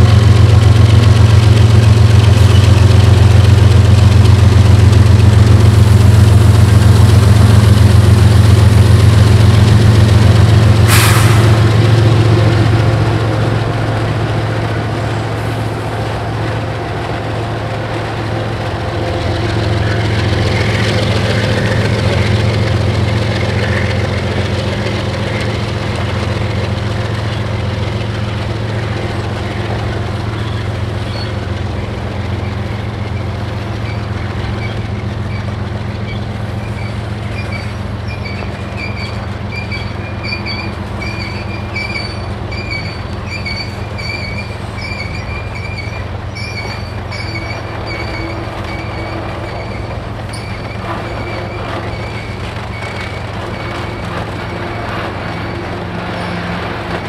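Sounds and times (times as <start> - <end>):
diesel locomotive engine: 0.0 - 57.0
wheels rumbling on rails: 0.0 - 57.0
high wheel squeal: 30.3 - 31.5, 32.4 - 57.0.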